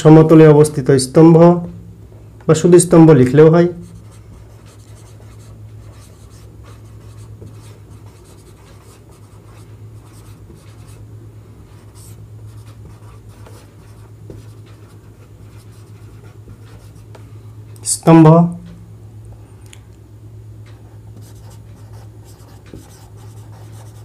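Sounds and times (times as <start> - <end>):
steady low hum: 0.0 - 24.0
pen scratching while writing: 4.0 - 11.0, 21.2 - 24.0.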